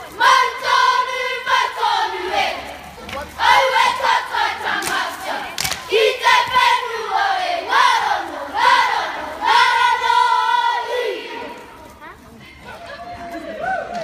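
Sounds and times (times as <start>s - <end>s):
children chanting in unison: 0.0s - 2.8s, 3.4s - 11.7s.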